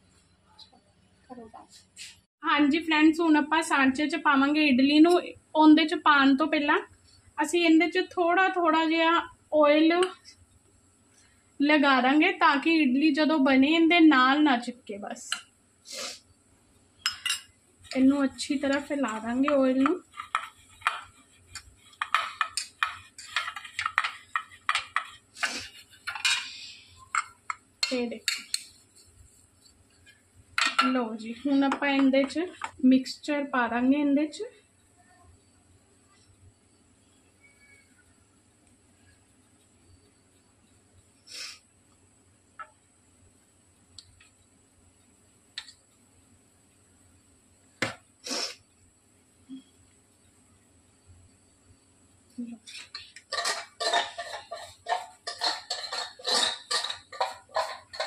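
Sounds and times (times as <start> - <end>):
metal scrape: 20.0 - 27.1, 52.7 - 58.0
fingers scraping thin metal plates: 52.8 - 58.0.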